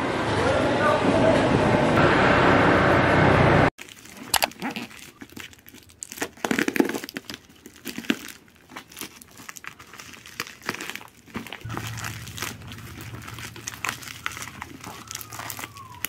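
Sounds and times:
loud traffic noise: 0.0s - 3.7s, 11.7s - 16.0s
plastic wrapping crinkling: 3.8s - 16.0s.

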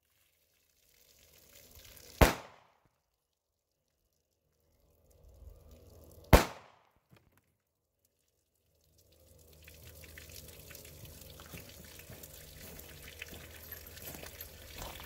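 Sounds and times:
water spilling and trickling: 0.0s - 6.4s, 7.4s - 15.0s
pistol shot: 2.2s - 2.7s, 6.3s - 6.9s.

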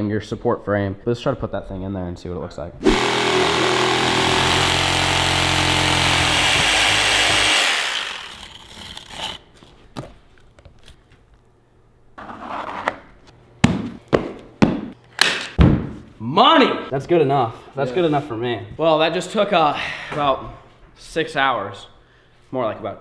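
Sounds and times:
jigsaw cutting plywood: 2.8s - 9.4s.

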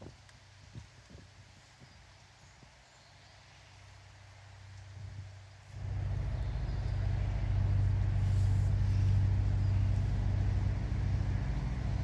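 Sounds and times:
large diesel engine running: 5.8s - 12.0s.

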